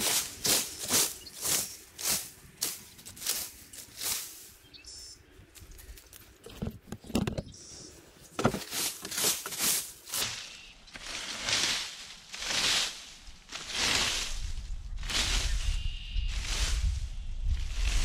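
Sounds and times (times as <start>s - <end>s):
rake scraping leaves: 0.0s - 4.6s, 8.2s - 18.0s.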